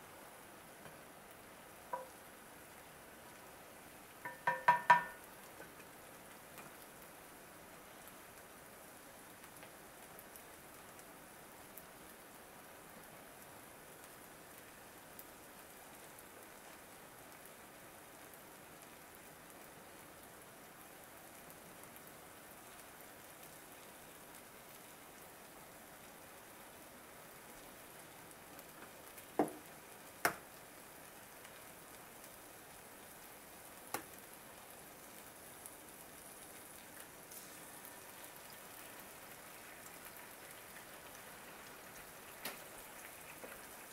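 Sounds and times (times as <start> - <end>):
noodles sizzling in a skillet: 0.0 - 43.9
sharp knocks: 4.3 - 5.2.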